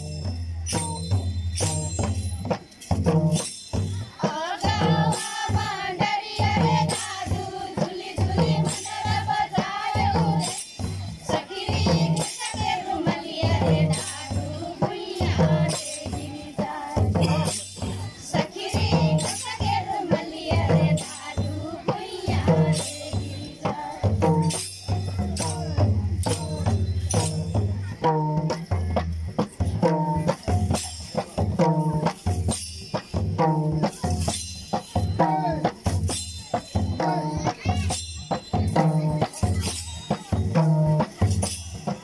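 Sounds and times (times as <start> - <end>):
metallic jingling: 0.0 - 42.0
group singing: 4.2 - 24.6.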